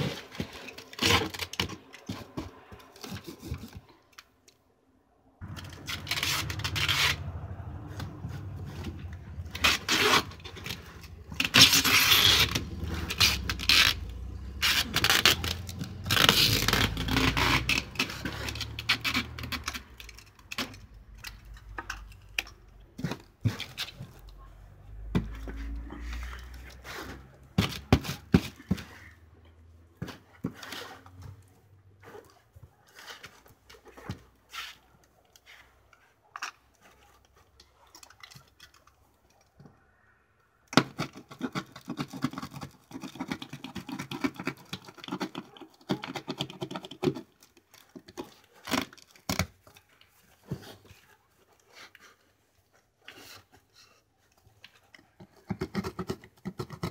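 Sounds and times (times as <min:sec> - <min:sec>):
plastic wrap crackling: 0:09.2 - 0:21.6.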